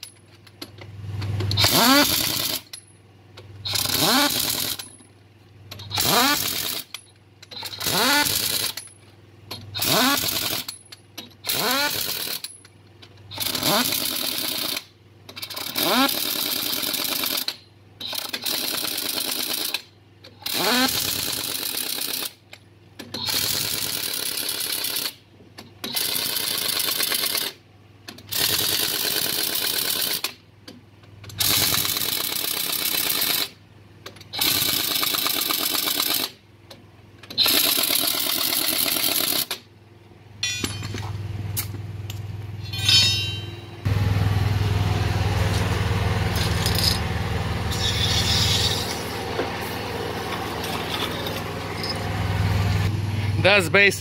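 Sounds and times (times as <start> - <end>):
air impact wrench hammering: 1.4 - 2.7, 3.6 - 4.8, 5.8 - 6.9, 7.5 - 8.8, 9.8 - 10.7, 11.4 - 12.4, 13.3 - 14.8, 20.4 - 22.3, 31.4 - 33.5, 34.3 - 36.3, 37.4 - 39.6, 42.6 - 44.0, 45.4 - 52.1.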